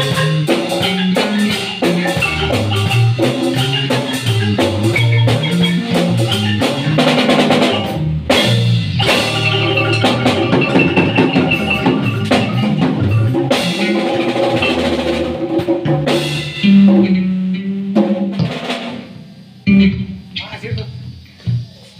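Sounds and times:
marimba: 0.0 - 17.2
low bass notes: 0.0 - 21.6
drum kit and congas: 0.0 - 21.9.

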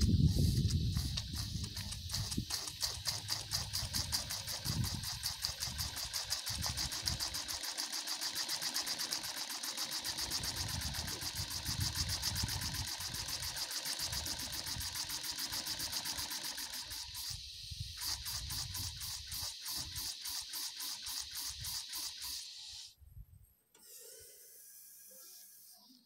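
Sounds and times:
steam engine exhaust puffing: 0.0 - 23.0, 23.8 - 26.0.

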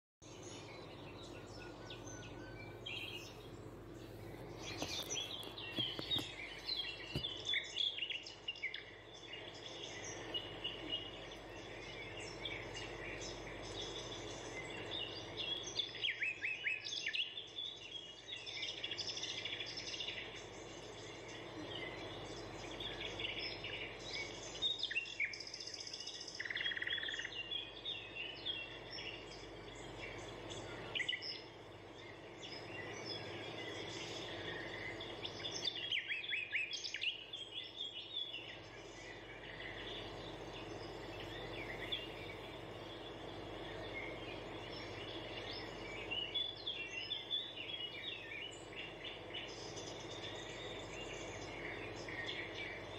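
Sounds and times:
low background noise: 0.2 - 52.9
small birds chirping: 0.2 - 52.9.

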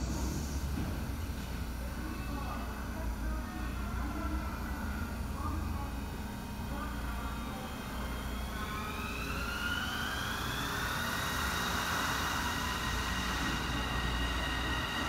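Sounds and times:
electric train drive whine: 0.0 - 15.0.

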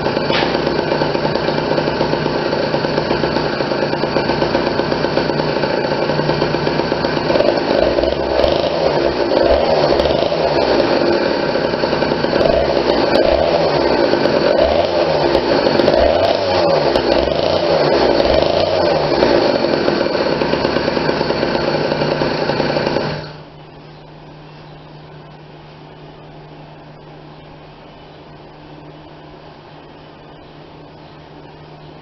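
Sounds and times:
two-stroke engine revving: 0.0 - 23.5.

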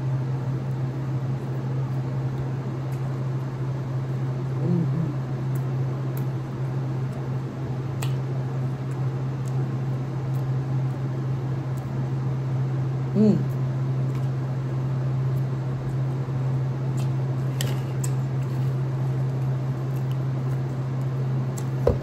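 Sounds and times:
quiet eating sounds: 0.5 - 12.3, 13.0 - 22.0
person humming mm: 4.6 - 5.3, 13.1 - 13.6.

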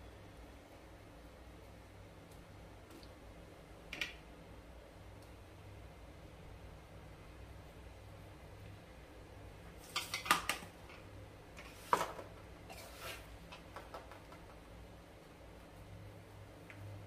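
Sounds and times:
scraping of crumbly mixture: 11.6 - 13.5.

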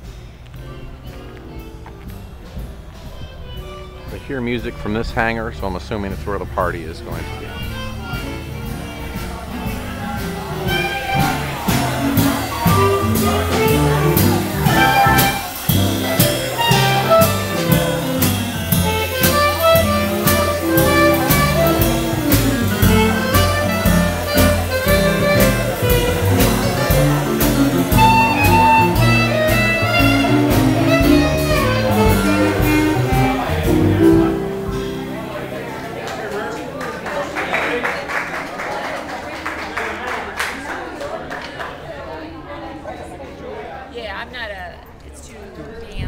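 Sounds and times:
drums and cymbals beat: 0.0 - 35.6
walking double bass line: 0.0 - 36.5
electric keyboard melody: 0.0 - 36.8.

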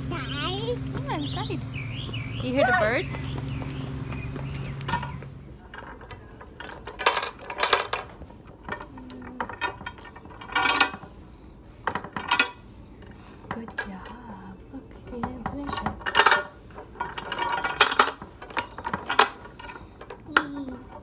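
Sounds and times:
wooden beads clacking on wire toy: 15.2 - 21.0.

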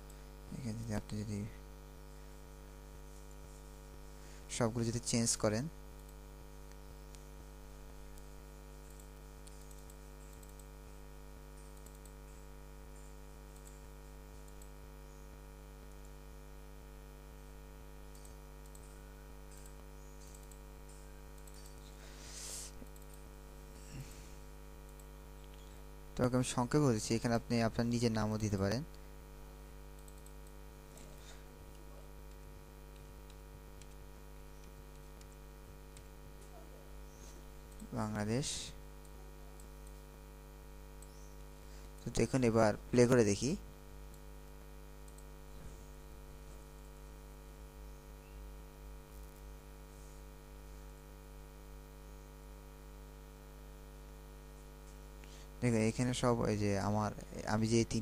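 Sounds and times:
electrical hum: 0.0 - 58.0
computer mouse clicks: 8.1 - 10.7, 11.6 - 14.8, 18.1 - 22.0, 22.7 - 23.3, 24.8 - 25.8, 29.9 - 38.0, 39.0 - 40.1, 45.0 - 45.3, 49.1 - 49.5.

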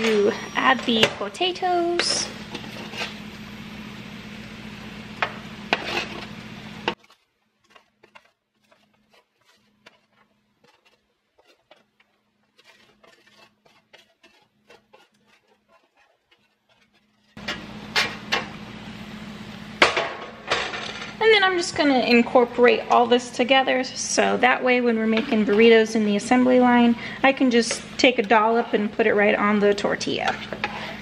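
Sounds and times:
steady hum: 0.0 - 7.0, 7.7 - 31.0
spatula scraping sheet pan: 0.1 - 3.2, 5.2 - 18.5.

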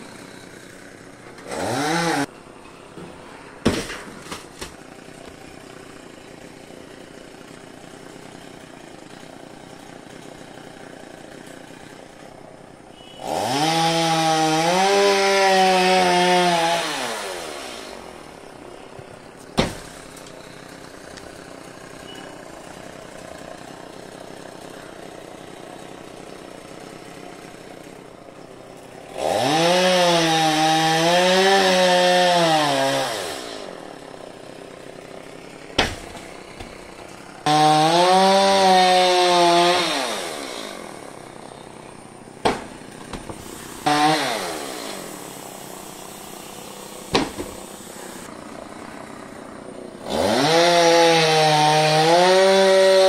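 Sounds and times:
chainsaw idling and revving: 0.0 - 2.3, 4.5 - 53.0
sharp knocks: 19.6 - 20.0, 35.8 - 36.8, 42.4 - 43.4, 47.1 - 47.6.

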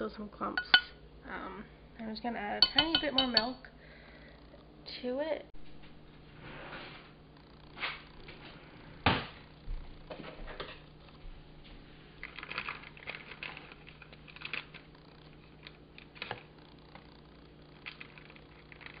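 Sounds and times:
faint low hum: 0.0 - 19.0
plastic bag crinkling: 12.2 - 16.4.

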